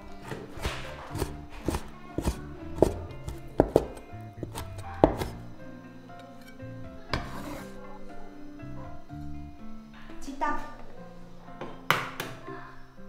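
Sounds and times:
background music: 0:00.0 - 0:13.0
knife chopping on cutting board: 0:00.2 - 0:05.4.

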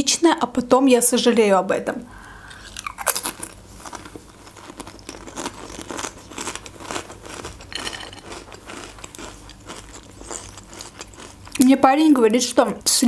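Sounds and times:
person chewing crunchy food: 0:02.4 - 0:11.6.

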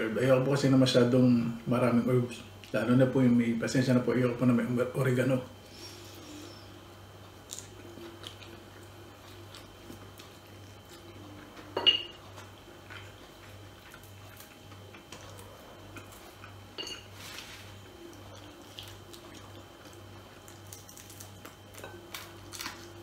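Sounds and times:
low steady hum: 0:00.0 - 0:23.0
chewing clicks and smacks: 0:07.5 - 0:11.3
dishware clink: 0:11.8 - 0:12.2, 0:16.8 - 0:17.1.

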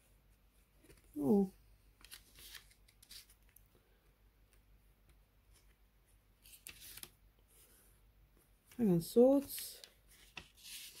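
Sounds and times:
paper booklet pages rustling: 0:00.7 - 0:03.6, 0:05.4 - 0:07.7, 0:08.6 - 0:11.0.

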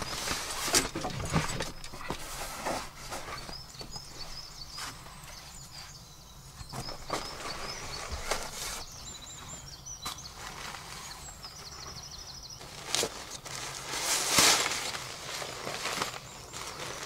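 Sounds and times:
bird chirps: 0:00.0 - 0:13.5
footsteps on leaf litter: 0:12.6 - 0:17.0.

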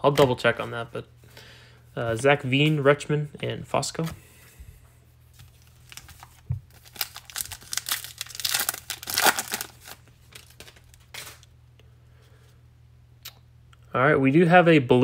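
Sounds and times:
foil wrapper crinkling and tearing: 0:05.5 - 0:11.5.

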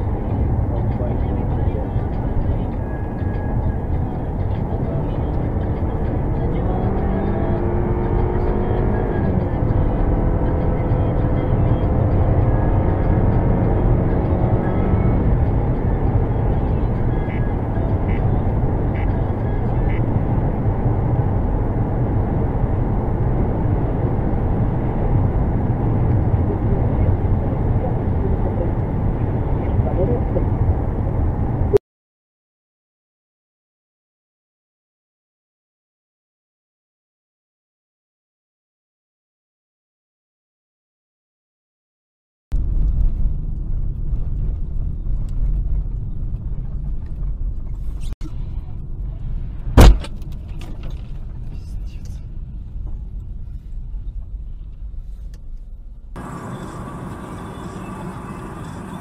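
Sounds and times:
car road and engine noise: 0:00.0 - 0:31.8, 0:42.6 - 0:59.0
loud sudden thump: 0:49.8 - 0:50.2.

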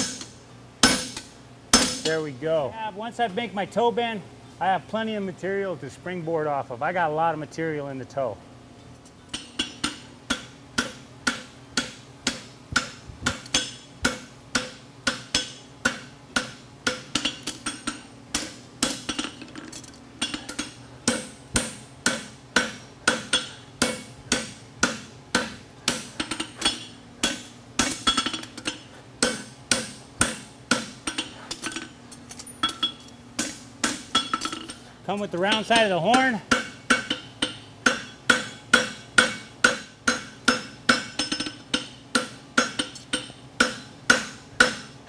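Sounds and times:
anvil metallic ring: 0:26.2 - 0:33.2, 0:34.1 - 0:34.8, 0:35.5 - 0:43.9
hammer blows on anvil: 0:32.6 - 0:44.9.

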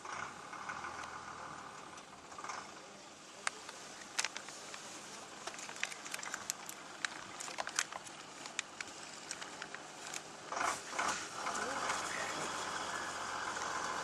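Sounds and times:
animal chewing grass: 0:03.4 - 0:13.7.

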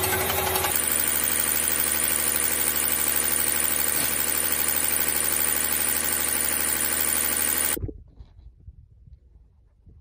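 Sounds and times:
injection pump mechanical rattle: 0:00.0 - 0:07.9.

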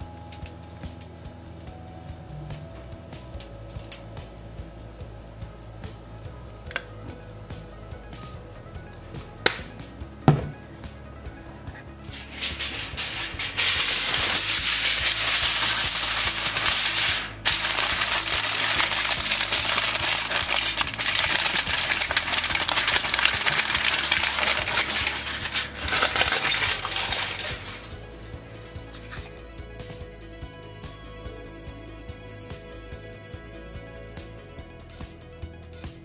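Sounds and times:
aluminium foil crinkling: 0:11.8 - 0:29.3.

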